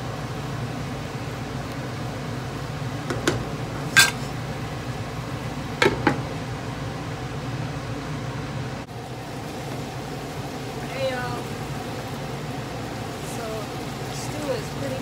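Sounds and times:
metal cookware clinking: 3.9 - 4.3.

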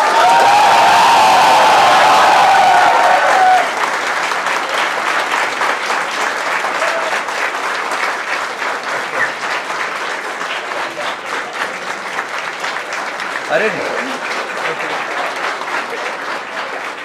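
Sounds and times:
crowd shouting: 0.0 - 3.8
audience applause: 0.0 - 17.0.

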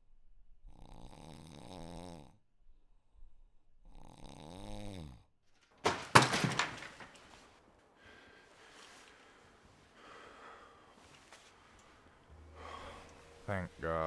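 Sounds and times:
man snoring: 0.7 - 2.4, 3.8 - 5.3.

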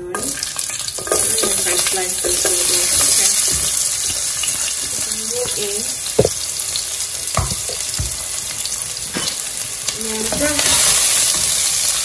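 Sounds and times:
onions sizzling in hot oil: 0.0 - 12.0
spatula knocking against pot: 6.2 - 6.4, 7.4 - 8.2.

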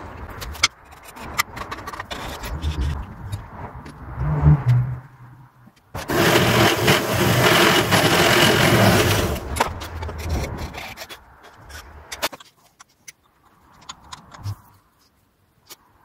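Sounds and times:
mill drill grinding wood: 6.0 - 9.5.

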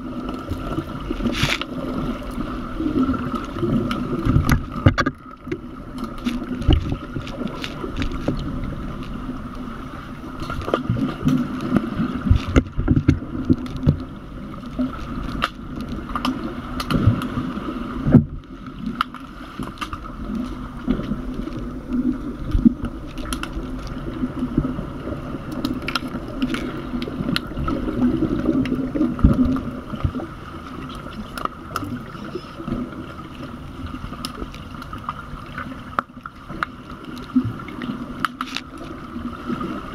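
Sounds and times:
muffled underwater churning rumble: 0.0 - 39.9
underwater clicks and knocks: 3.0 - 9.2, 10.4 - 17.4, 18.0 - 24.7, 25.5 - 30.2.

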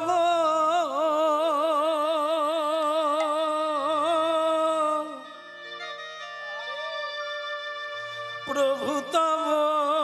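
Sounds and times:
sustained accompanying notes: 3.5 - 10.0.

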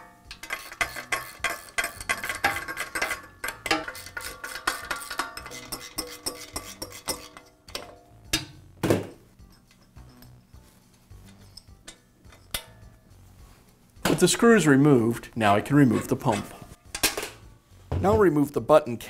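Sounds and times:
ratchet wrench clicking: 0.3 - 7.4.

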